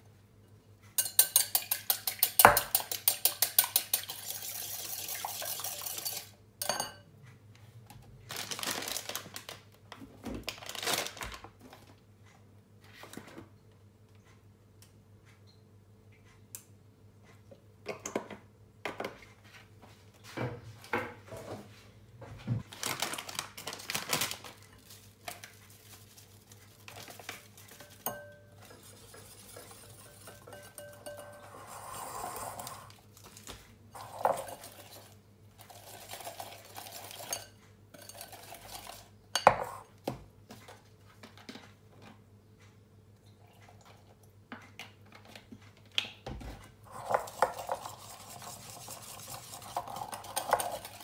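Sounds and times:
whisk clicking against glass bowl: 1.0 - 4.4, 27.8 - 31.4
plastic packet rustling: 8.3 - 9.8, 10.4 - 11.9, 22.7 - 27.7.

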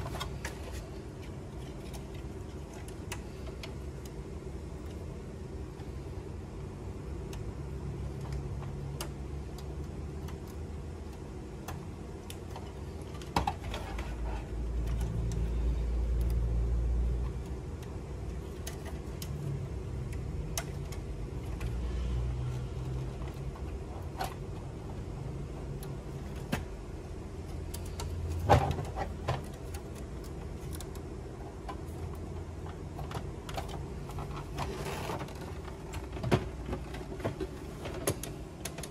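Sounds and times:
plastic parts clicking and rattling: 8.1 - 21.8, 27.4 - 38.9.

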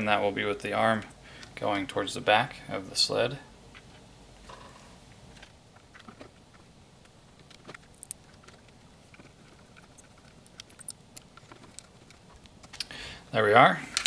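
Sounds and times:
plastic parts clicking: 7.4 - 12.9.

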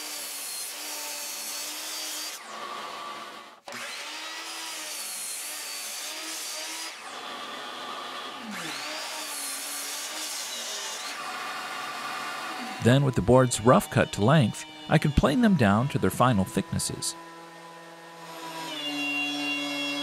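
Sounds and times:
miter saw cutting wood: 0.0 - 20.0
saw blade winding down: 8.4 - 20.0.

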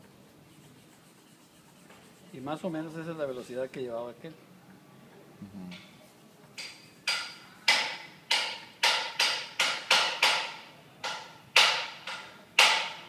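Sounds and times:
sharp ringing metallic knocks: 6.6 - 13.0.

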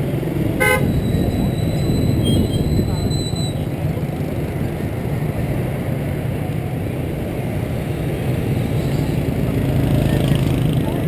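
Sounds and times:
motorbike traffic rumble: 0.0 - 11.0.

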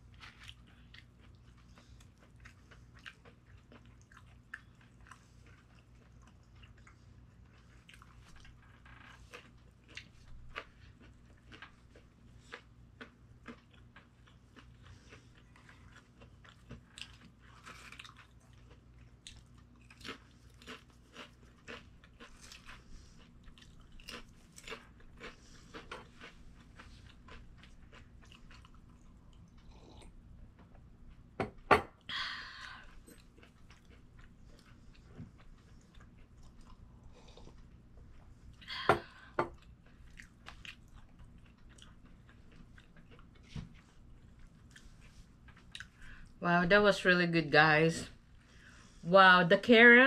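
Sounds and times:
chewing crunchy food: 0.0 - 31.4, 32.5 - 46.4.

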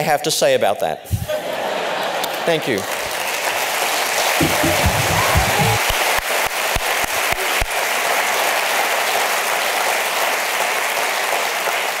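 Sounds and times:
audience applauding: 1.5 - 12.0.

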